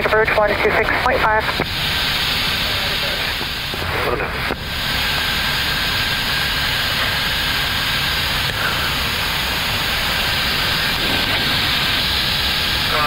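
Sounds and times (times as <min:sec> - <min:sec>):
faint high whine: 0:08.3 - 0:13.0
aircraft cabin rushing noise: 0:09.8 - 0:13.0.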